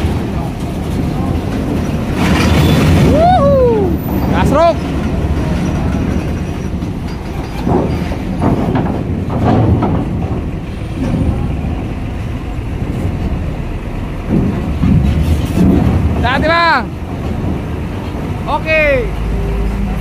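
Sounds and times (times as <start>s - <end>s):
diesel truck engine rumble: 0.0s - 20.0s
wheels clanking on steel plates: 0.0s - 20.0s.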